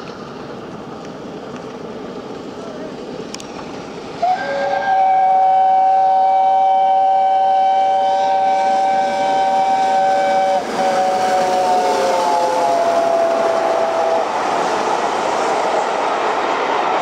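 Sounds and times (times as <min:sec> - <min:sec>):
approaching train noise: 0:00.0 - 0:17.0
steam locomotive chime whistle: 0:04.2 - 0:14.4.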